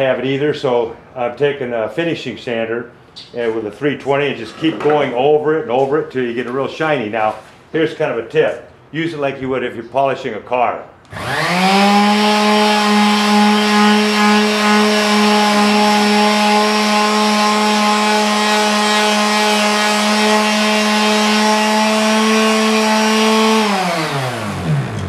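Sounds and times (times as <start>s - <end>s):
sander buzzing on wood: 11.1s - 25.0s.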